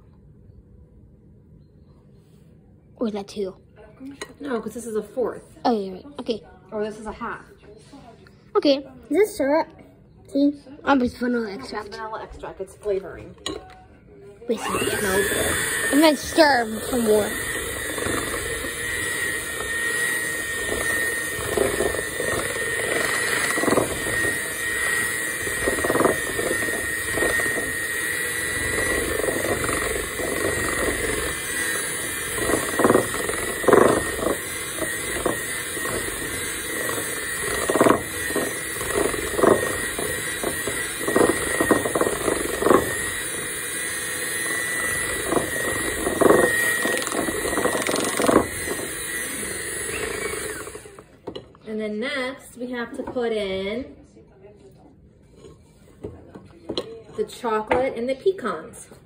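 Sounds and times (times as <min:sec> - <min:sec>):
electric hand mixer whining: 0:14.5 - 0:51.2.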